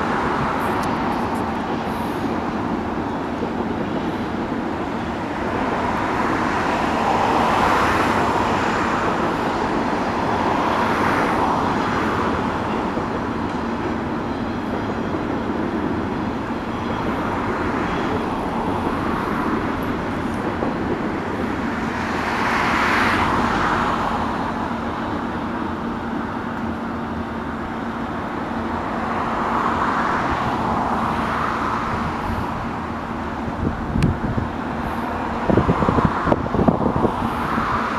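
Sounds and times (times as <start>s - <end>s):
cars passing by: 0.0s - 37.9s.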